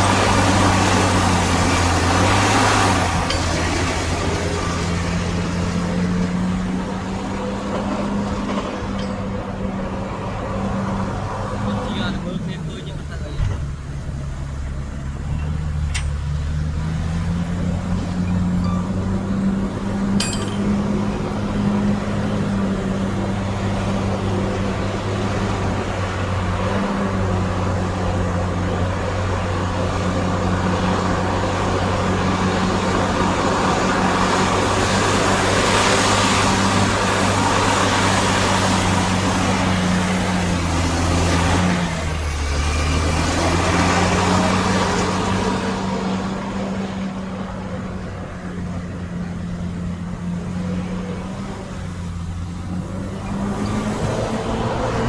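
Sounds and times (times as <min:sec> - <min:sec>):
diesel engine under load: 0:00.0 - 0:55.0
metallic clink: 0:03.2 - 0:03.7, 0:15.4 - 0:16.2, 0:18.2 - 0:19.1, 0:20.1 - 0:21.0.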